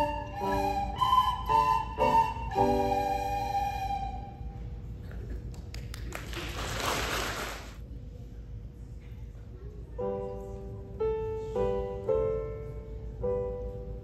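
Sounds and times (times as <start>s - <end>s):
children playing recorders: 0.0s - 4.8s
people applauding: 5.4s - 7.8s.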